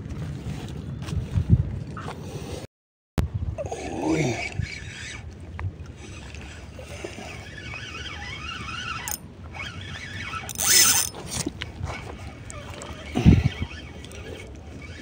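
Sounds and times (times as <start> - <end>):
fishing reel cranking: 5.9 - 11.4.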